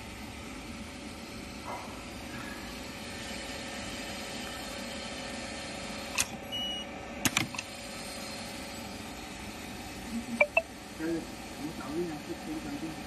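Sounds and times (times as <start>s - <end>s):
steady hum: 8.7s - 13.0s
short high beep: 10.4s - 10.6s.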